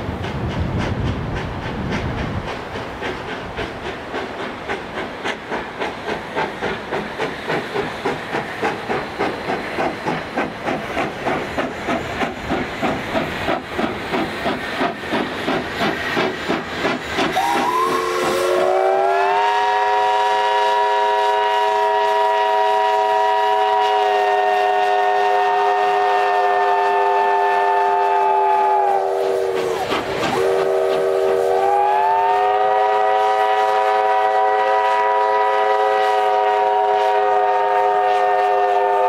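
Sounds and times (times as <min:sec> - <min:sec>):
steam locomotive exhaust chuffs: 0:00.0 - 0:39.0
steam whistle chord: 0:17.4 - 0:29.7, 0:30.3 - 0:39.0.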